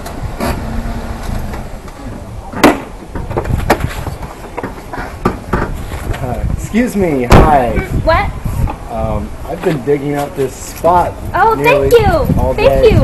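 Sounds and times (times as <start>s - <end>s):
sharp knock: 2.6s - 3.9s.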